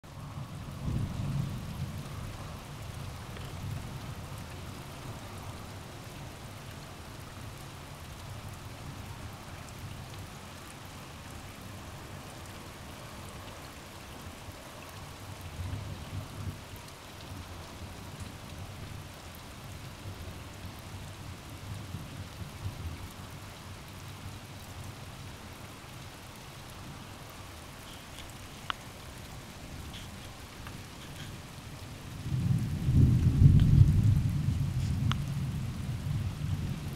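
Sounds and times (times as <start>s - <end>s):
steady rain: 0.0s - 36.9s
distant thunder rolling: 32.1s - 36.9s.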